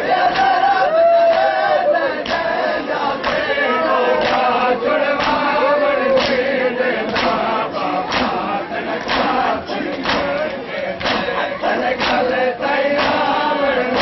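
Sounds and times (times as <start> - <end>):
men chanting together: 0.0 - 14.0
hands slapping chests: 2.2 - 2.5, 3.2 - 3.5, 4.2 - 4.5, 5.1 - 5.5, 6.1 - 6.4, 7.1 - 7.4, 8.1 - 11.3, 12.0 - 12.3, 13.0 - 13.3.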